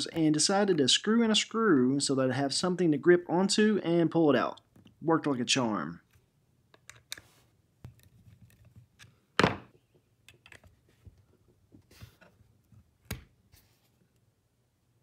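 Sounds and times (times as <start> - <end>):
loud thunk: 9.4 - 9.7.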